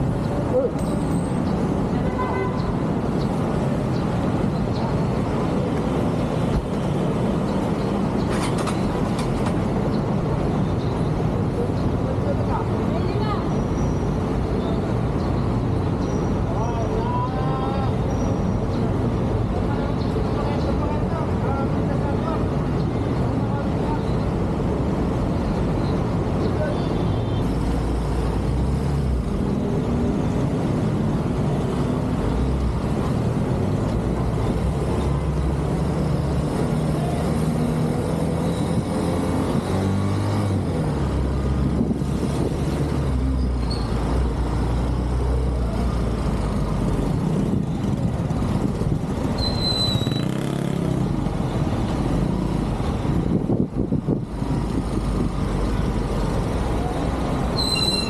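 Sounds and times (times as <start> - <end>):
surrounding car traffic: 0.0 - 58.0
short high squeals: 49.3 - 50.4, 57.5 - 58.0.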